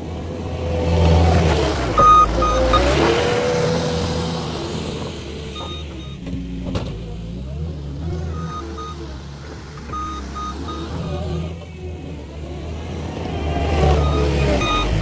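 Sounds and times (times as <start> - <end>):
diesel engine running: 0.0 - 15.0
short beeps: 2.0 - 2.9, 9.9 - 10.8, 14.0 - 15.0.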